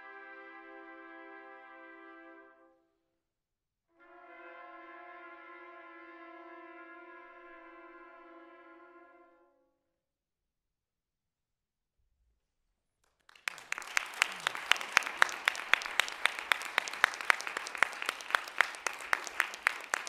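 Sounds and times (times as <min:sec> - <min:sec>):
audience applauding: 0:13.0 - 0:20.0
loud sharp claps near microphone: 0:13.0 - 0:20.0.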